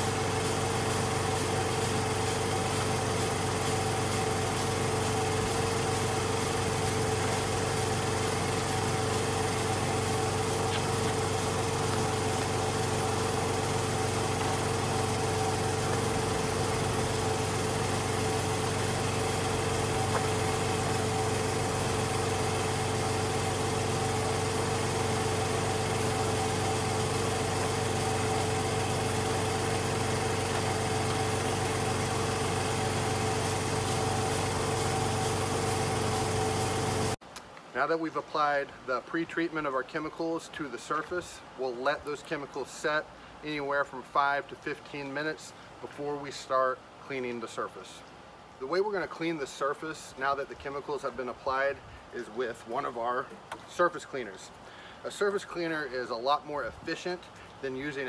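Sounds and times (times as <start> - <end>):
small engine droning: 0.0 - 37.2.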